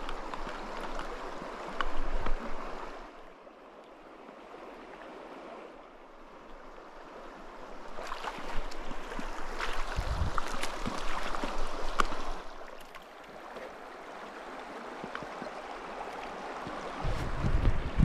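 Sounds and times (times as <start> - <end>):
water splashes and drips: 0.0 - 3.2, 7.8 - 17.7
creek babbling: 0.0 - 17.1.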